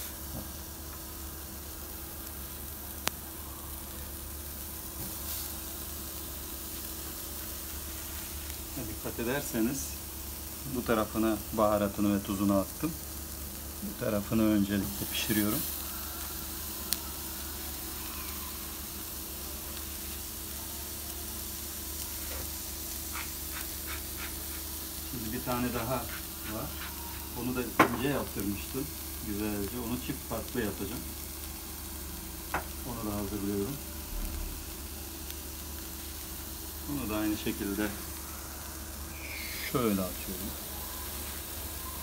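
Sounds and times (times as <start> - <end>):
burger patties sizzling on grill: 0.0 - 42.0.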